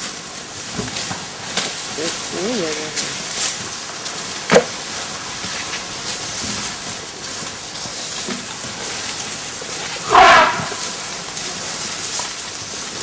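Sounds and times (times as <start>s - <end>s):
steady hiss: 0.0s - 13.0s
elephant trumpeting: 10.0s - 11.2s.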